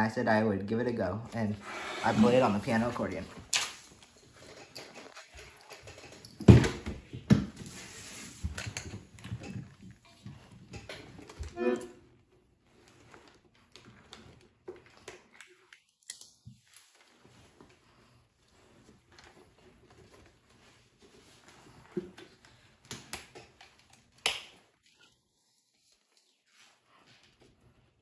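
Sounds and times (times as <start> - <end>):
accordion squeak: 11.6 - 12.0.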